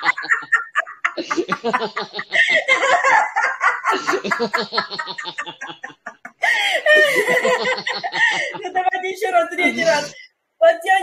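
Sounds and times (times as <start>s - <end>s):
hearty laughter: 0.0s - 8.7s.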